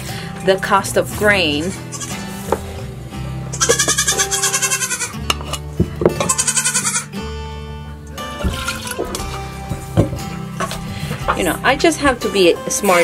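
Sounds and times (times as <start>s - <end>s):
goat bleating: 1.6s - 2.4s, 3.5s - 5.2s, 6.2s - 7.2s.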